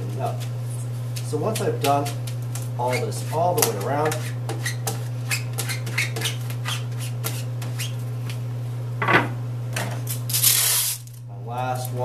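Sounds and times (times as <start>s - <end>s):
steady low hum: 0.0s - 12.0s
plastic squeegee scraping tape: 10.3s - 11.2s.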